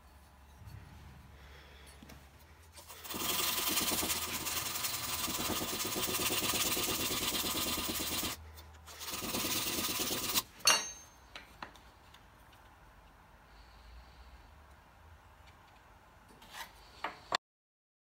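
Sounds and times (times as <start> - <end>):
sandpaper rubbing on wood: 2.8 - 10.5.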